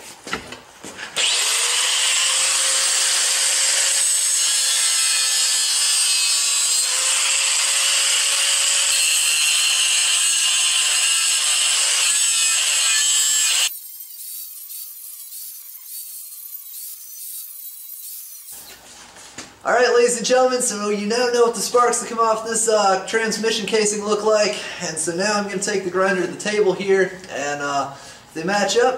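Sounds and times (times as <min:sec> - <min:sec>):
angle grinder grinding metal: 0:01.1 - 0:18.8.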